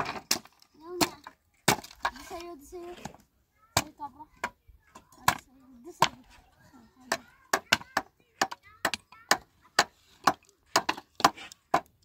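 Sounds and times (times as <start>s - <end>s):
hand tool striking wooden boards: 0.0s - 2.3s, 7.1s - 12.0s.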